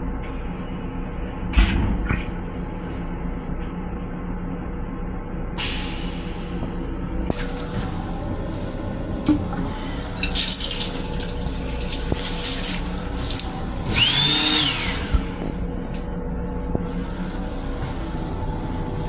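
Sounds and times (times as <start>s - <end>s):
low rumble and hum of railcar: 0.0s - 19.0s
faucet running into sink: 10.1s - 13.6s.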